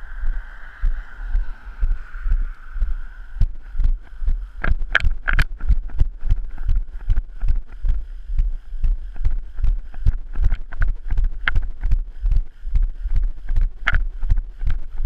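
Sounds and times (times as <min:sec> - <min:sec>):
footsteps on pavement: 0:00.2 - 0:15.0
sharp clicks: 0:04.6 - 0:07.8, 0:09.2 - 0:12.0, 0:13.1 - 0:14.8.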